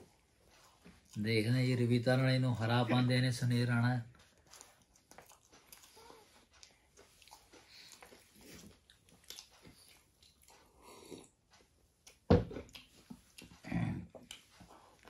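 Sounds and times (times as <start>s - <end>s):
crispy food chewing: 0.0s - 2.6s, 3.3s - 15.0s.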